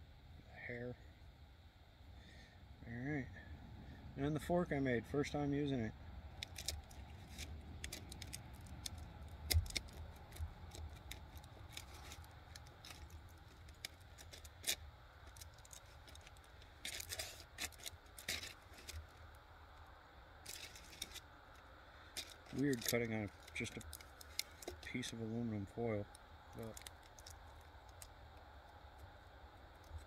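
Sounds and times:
knife scraping on foil: 15.4 - 19.0, 20.5 - 21.2.

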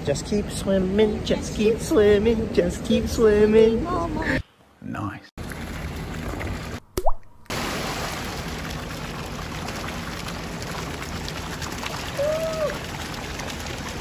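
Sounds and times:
fountain water pouring: 5.4 - 6.8, 7.5 - 14.0
swimmer splashing: 5.4 - 14.0.

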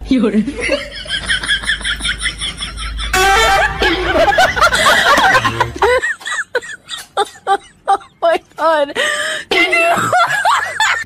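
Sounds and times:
people laughing: 0.5 - 8.4, 9.5 - 11.0
snickering: 0.6 - 8.2
background music: 3.1 - 6.2.

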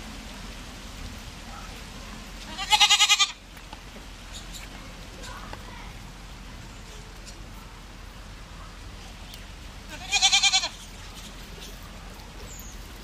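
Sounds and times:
goat kid bleating: 2.4 - 3.4, 9.8 - 11.0.

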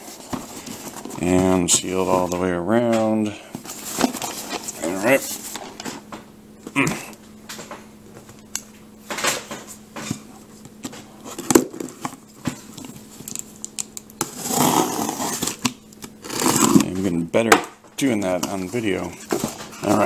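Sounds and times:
box cutter slicing packing tape: 14.2 - 16.9.

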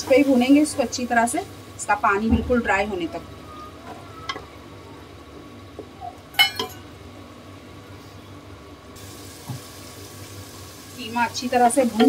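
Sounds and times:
minced meat sizzling: 0.0 - 3.5, 9.0 - 12.0.

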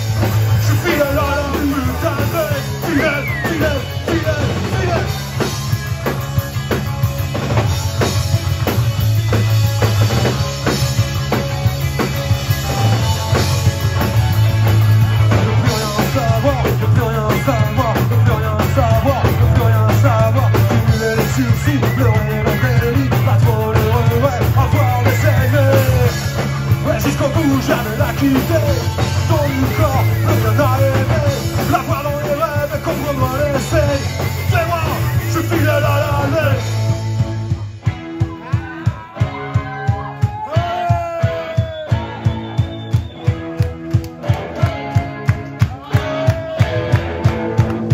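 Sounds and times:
bass guitar: 0.0 - 47.9
drum kit: 0.0 - 47.9
electric guitar: 0.0 - 47.9
man singing into a microphone: 0.5 - 5.2, 15.4 - 36.8.

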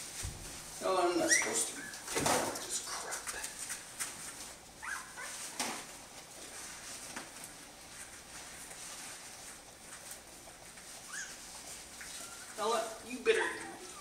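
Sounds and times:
puppy whimpering: 1.2 - 2.2, 4.8 - 5.6, 10.9 - 14.0.

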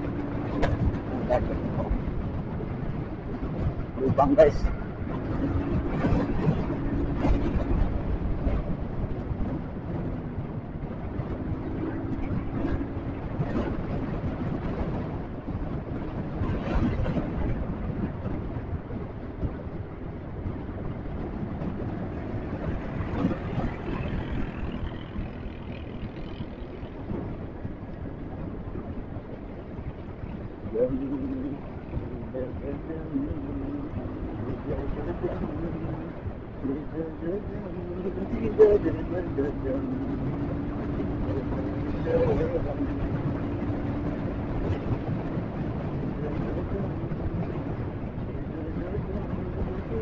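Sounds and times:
road noise: 0.0 - 50.0
wind rushing over microphone: 0.0 - 50.0
motorcycle engine: 16.9 - 32.3.

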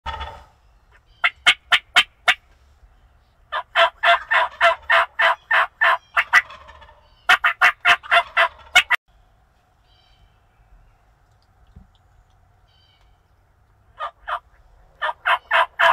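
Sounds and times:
wild turkey calling: 0.1 - 9.0, 12.6 - 15.9.

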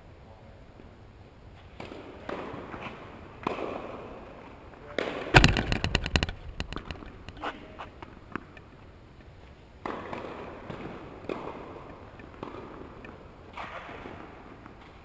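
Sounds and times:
tennis balls struck and bouncing: 1.8 - 4.0, 5.0 - 8.8, 9.8 - 13.3.

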